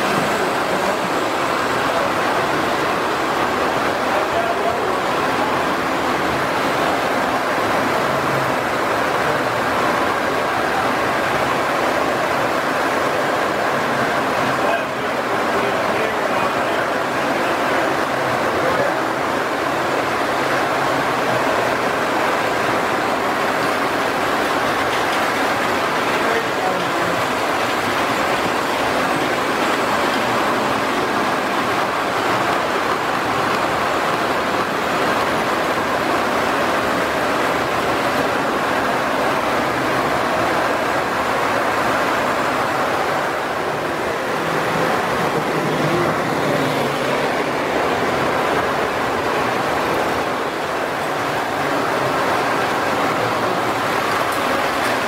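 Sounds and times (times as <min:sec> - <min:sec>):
toy trains rolling on metal track: 0:53.4 - 0:55.0.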